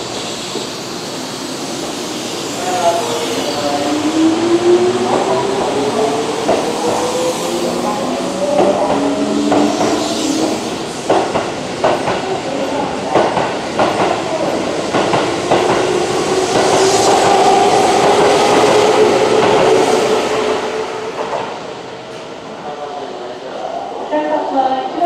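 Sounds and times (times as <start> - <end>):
train wheels clacking over rail joints: 11.1 - 12.3.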